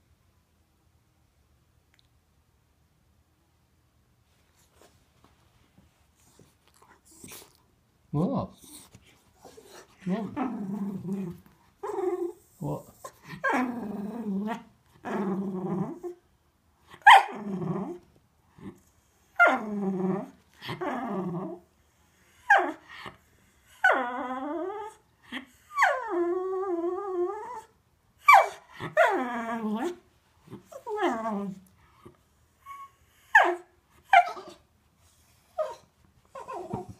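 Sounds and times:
dog moaning and grumbling: 6.7s - 16.2s, 16.9s - 34.6s, 35.4s - 36.9s
dog barking: 17.0s - 17.3s.

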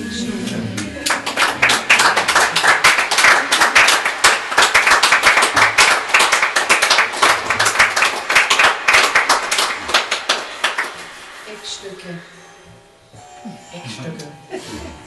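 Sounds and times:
audience applauding: 0.5s - 11.5s.

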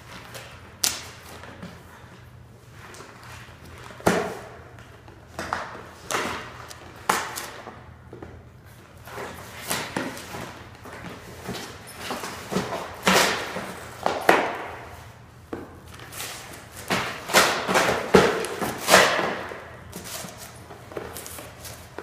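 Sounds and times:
boxes thumping on floor: 16.8s - 20.3s.

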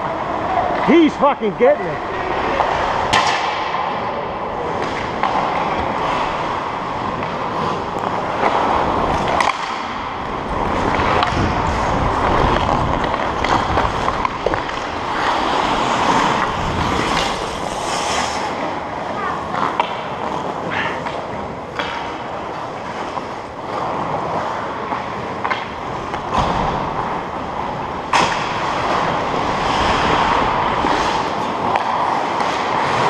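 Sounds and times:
skate blades scraping on ice: 0.1s - 33.0s
stick hitting puck: 2.5s - 4.0s, 4.8s - 5.6s, 7.2s - 9.9s, 10.8s - 11.5s, 19.5s - 22.2s, 25.4s - 26.8s, 28.1s - 29.0s, 30.8s - 33.0s.

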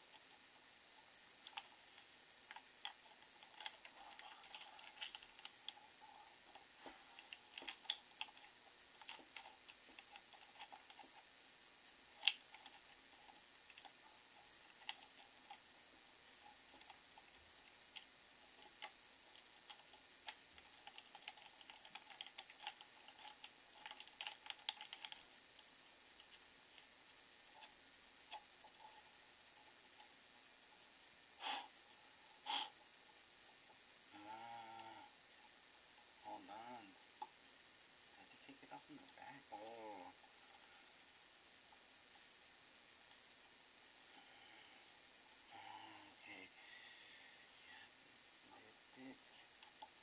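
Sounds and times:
light clicks of small parts: 1.3s - 11.4s, 12.1s - 15.7s, 16.3s - 26.9s.

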